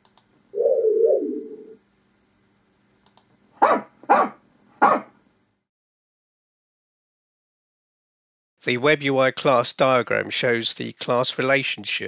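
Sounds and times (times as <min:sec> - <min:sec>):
wavering electronic tone: 0:00.6 - 0:01.8
dog barking: 0:03.6 - 0:05.2.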